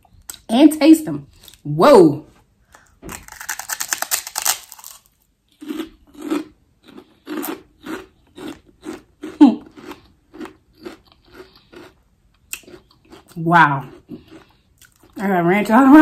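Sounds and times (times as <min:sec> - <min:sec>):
crunching pork rind: 0:03.1 - 0:15.2.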